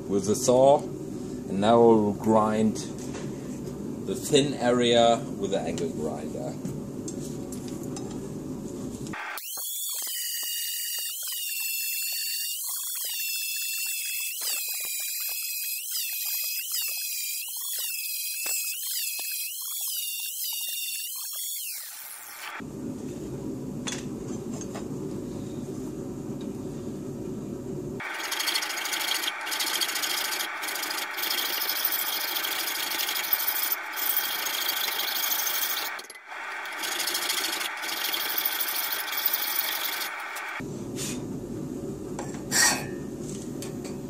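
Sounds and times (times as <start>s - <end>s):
angle grinder spinning down: 9.2s - 22.6s, 28.0s - 40.6s.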